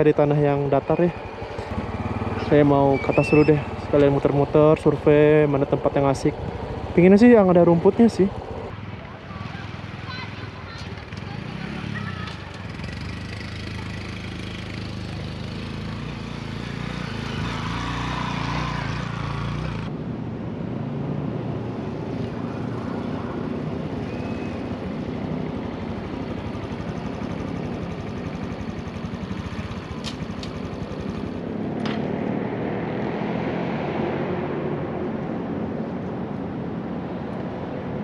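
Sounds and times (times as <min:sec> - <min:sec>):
motorcycle engine running: 0:00.0 - 0:08.7, 0:09.5 - 0:19.9, 0:23.9 - 0:32.1.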